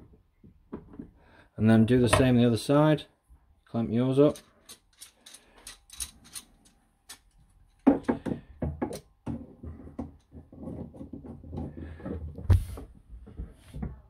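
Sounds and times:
wooden knocks: 0:07.8 - 0:14.0.

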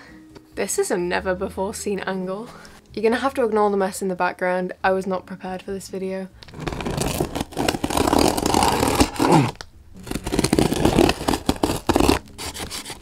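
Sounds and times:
scissor blade slitting packing tape: 0:06.6 - 0:13.0.

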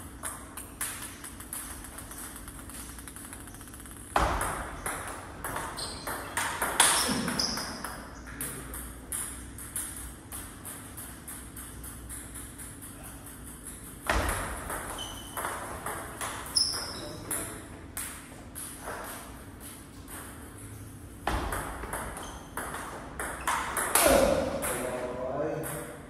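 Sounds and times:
table tennis ball clicks: 0:00.1 - 0:08.0
short high squeaks: 0:14.9 - 0:15.4, 0:16.5 - 0:17.2.

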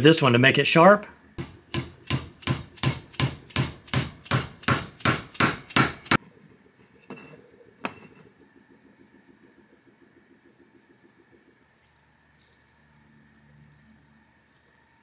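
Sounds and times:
hammer striking copper pipe: 0:01.4 - 0:06.2.

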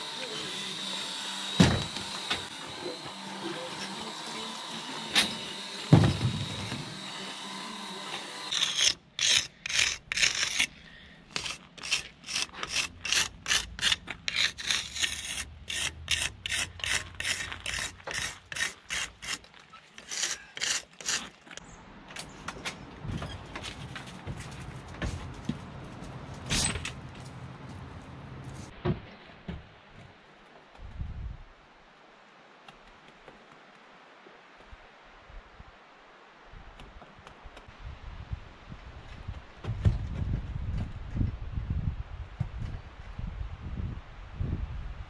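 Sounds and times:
tool scraping mortar joint: 0:07.8 - 0:21.6.

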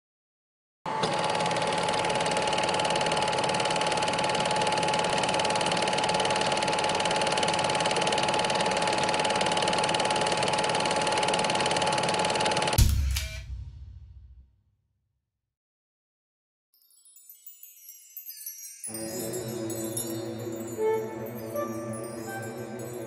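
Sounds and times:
small machine clattering: 0:01.0 - 0:12.8
high machine whine: 0:18.9 - 0:23.0.

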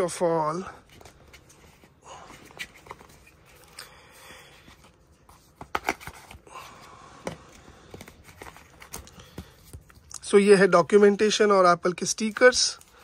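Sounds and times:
cardboard and paper handling: 0:00.8 - 0:03.8, 0:04.6 - 0:10.1.

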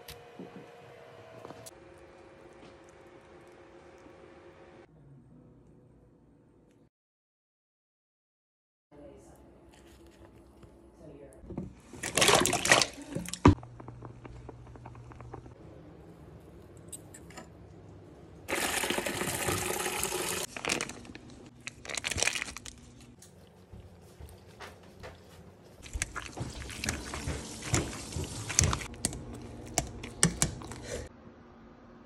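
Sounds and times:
water pouring: 0:11.8 - 0:13.6, 0:18.5 - 0:20.9, 0:25.8 - 0:28.9.

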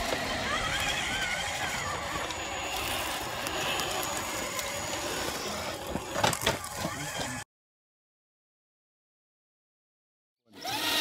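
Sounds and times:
electric motor whine: 0:00.0 - 0:07.4, 0:10.5 - 0:11.0
tyres crunching over rocks and twigs: 0:00.0 - 0:07.4.

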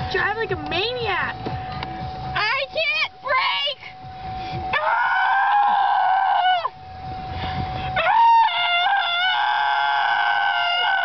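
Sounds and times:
girls screaming in play: 0:04.7 - 0:06.8, 0:08.0 - 0:11.0.

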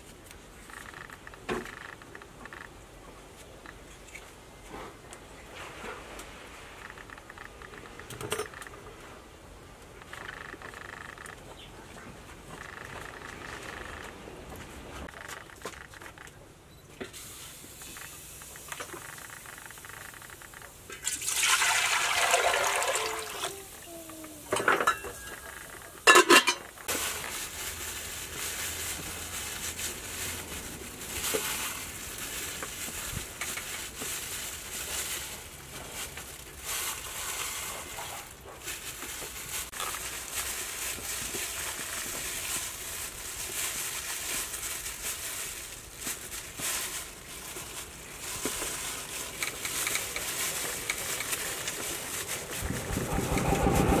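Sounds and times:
water pouring into pot: 0:21.0 - 0:23.5
plastic bag rustling: 0:21.3 - 0:54.0.

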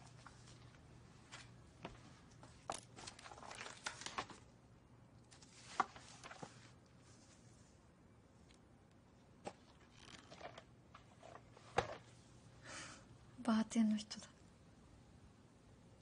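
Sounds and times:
faint steady hum: 0:00.0 - 0:16.0
pages rustling: 0:02.6 - 0:04.5, 0:05.3 - 0:07.5, 0:09.4 - 0:12.1.

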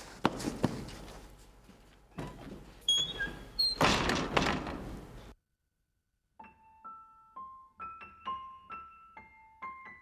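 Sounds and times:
slow piano melody: 0:06.4 - 0:10.0.

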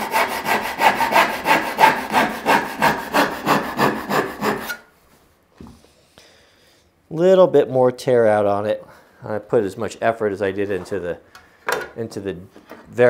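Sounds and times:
hand saw cutting wood: 0:00.0 - 0:04.9.

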